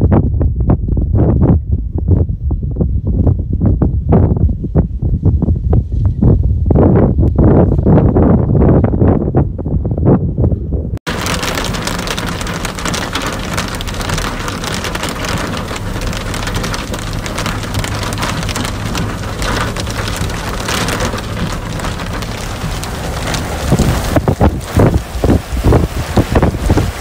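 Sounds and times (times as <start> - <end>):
car engine and road rumble: 0.0 - 27.0
heavy rain on a car: 11.1 - 27.0.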